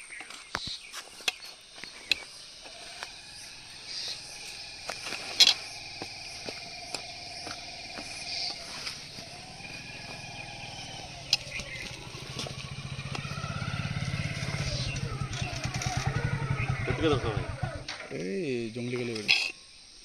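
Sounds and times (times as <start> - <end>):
insects trilling: 0.0 - 20.0
sharp clicks: 11.2 - 13.4.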